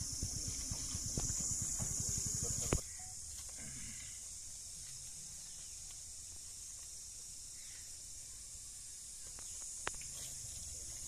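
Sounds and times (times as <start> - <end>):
faint outdoor background noise: 0.0 - 11.0
high-pitched hiss: 0.0 - 11.0.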